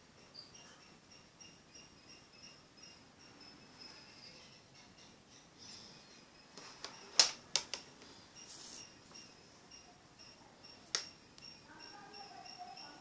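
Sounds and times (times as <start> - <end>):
faint crickets chirping: 0.0 - 13.0
plastic clicks and taps: 6.6 - 7.9.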